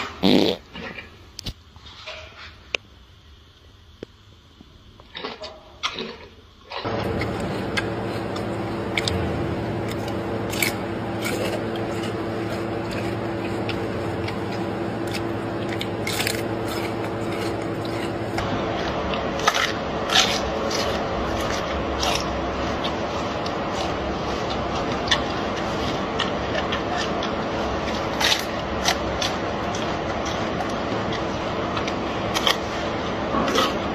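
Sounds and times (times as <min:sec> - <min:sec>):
gorilla chewing crisp leaves: 0:05.0 - 0:33.9
low hum: 0:06.8 - 0:33.9.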